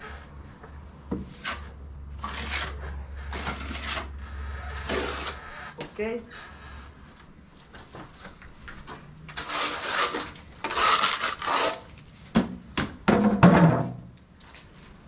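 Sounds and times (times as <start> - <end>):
trowel scraping wet stucco: 1.2 - 5.5, 9.3 - 12.0.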